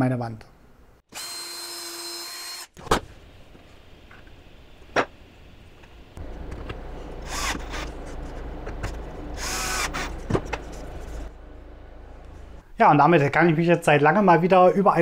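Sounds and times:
cordless drill driving screws: 0:01.1 - 0:02.7, 0:07.2 - 0:07.9, 0:09.4 - 0:10.2.

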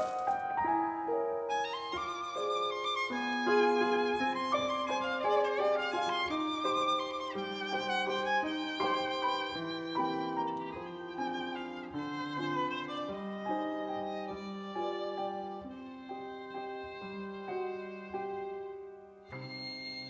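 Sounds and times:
violin melody of held notes: 0:00.0 - 0:20.0.

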